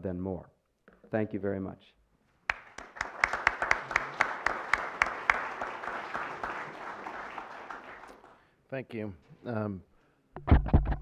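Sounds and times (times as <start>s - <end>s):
sharp close claps: 2.4s - 8.4s
audience applauding: 2.5s - 8.5s.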